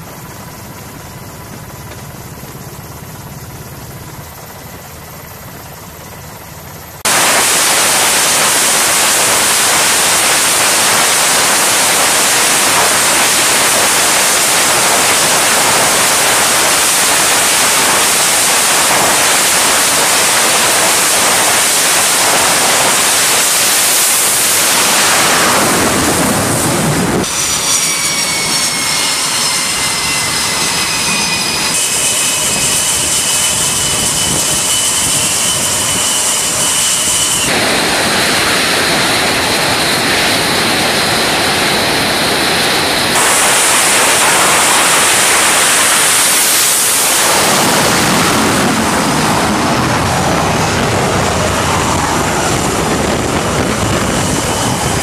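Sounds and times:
quieter steady rumble: 0.0 - 27.3
jet engines roaring: 0.0 - 55.0
high whining tones: 1.6 - 55.0.

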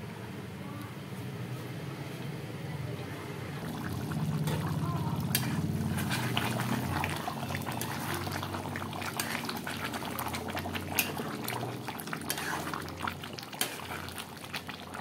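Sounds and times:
curry bubbling and popping: 3.5 - 15.0
metal spoon stirring: 4.4 - 14.8.

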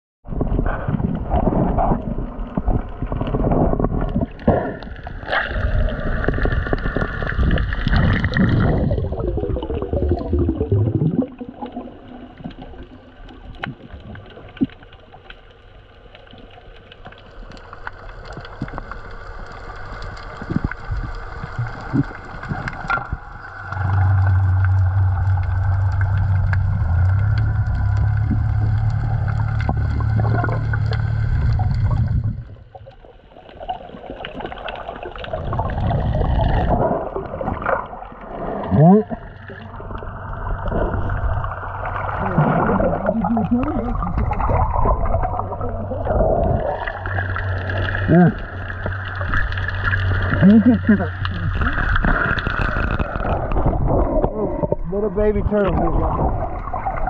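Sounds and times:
water rushing and gurgling: 0.3 - 57.0
small underwater clicks: 0.8 - 54.9
steady low drone: 23.1 - 32.7.

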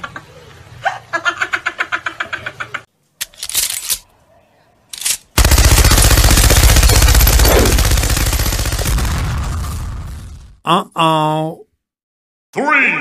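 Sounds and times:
machine-gun fire: 5.4 - 10.4.

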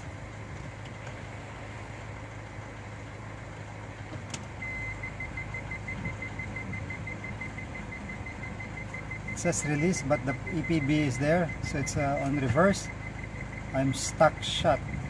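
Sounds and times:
car engine idling: 0.0 - 15.0
reverse warning beeps: 4.6 - 15.0.

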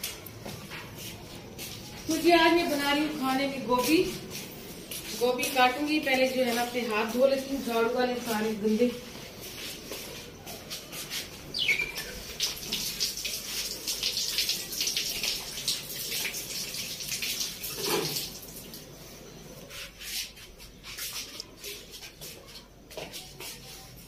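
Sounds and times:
tap water running and splashing: 11.8 - 19.0.

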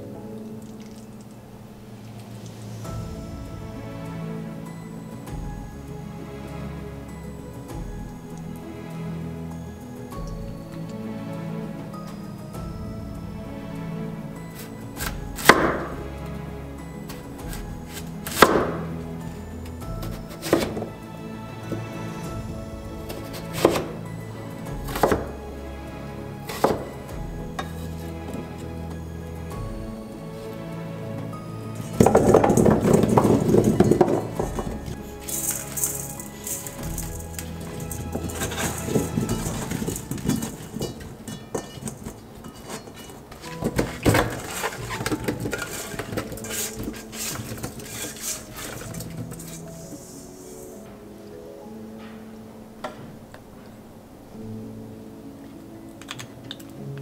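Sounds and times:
brine dripping: 0.0 - 13.6
background music: 0.0 - 57.0.

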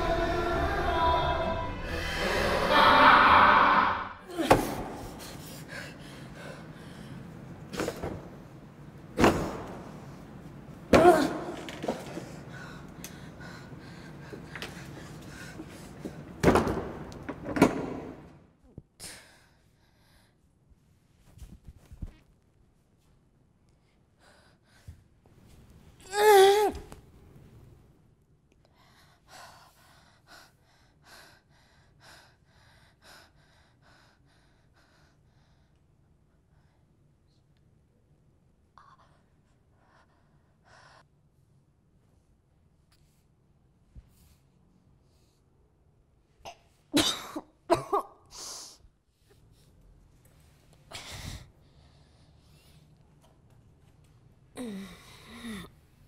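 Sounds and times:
woman breathing in ragged gasps: 28.6 - 35.8, 50.9 - 52.9.

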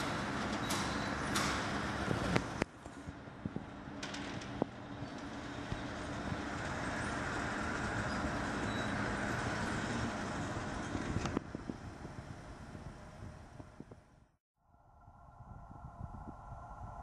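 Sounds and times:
roller shutter rolling up: 0.0 - 2.6, 3.8 - 12.1.

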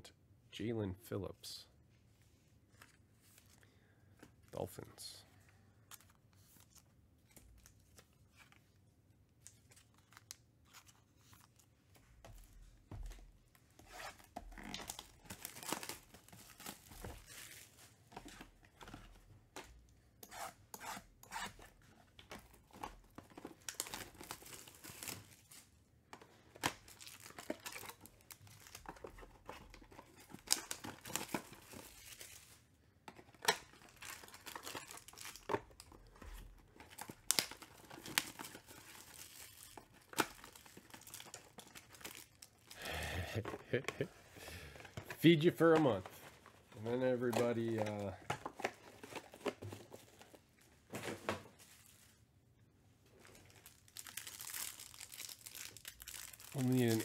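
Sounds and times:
plastic wrap crinkling: 26.6 - 52.2, 53.1 - 57.0.

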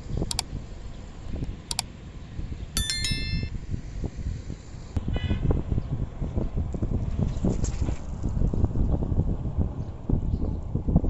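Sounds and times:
notification bell ding: 2.8 - 3.6.

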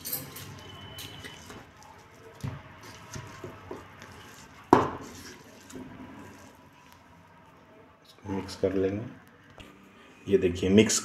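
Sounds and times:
spoon mashing potato: 0.0 - 7.3.

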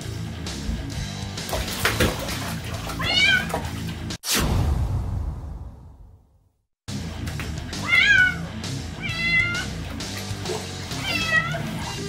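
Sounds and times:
background music: 0.0 - 4.2, 6.9 - 12.0
kitten meowing: 7.8 - 9.7, 11.0 - 11.7.

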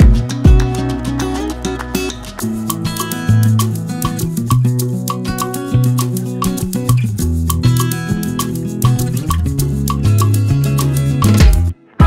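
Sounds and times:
heavy bass hit: 0.0 - 1.0
background music with steady beat: 0.0 - 11.8.

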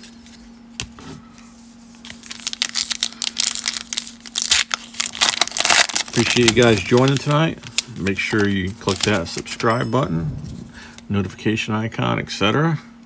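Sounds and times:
wrapper being torn and crinkled: 2.1 - 9.4.

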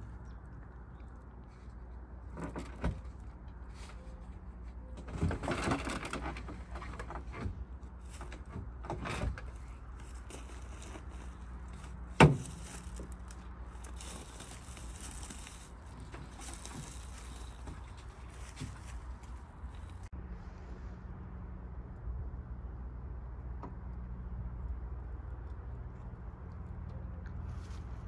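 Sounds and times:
rustling and scraping: 1.4 - 20.1.

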